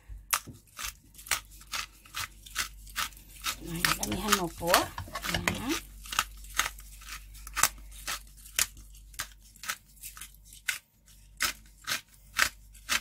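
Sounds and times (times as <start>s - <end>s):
metal spoon scraping a pan: 2.9s - 5.8s.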